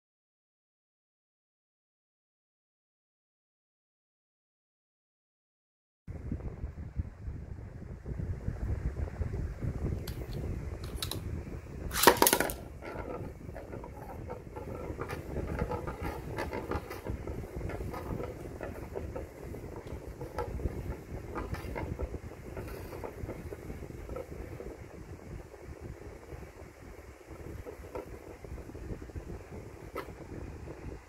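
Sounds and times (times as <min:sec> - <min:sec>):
spinning top landing burst: 0:11.8 - 0:24.0
spinning top spinning on dish: 0:11.9 - 0:25.5, 0:27.2 - 0:30.4.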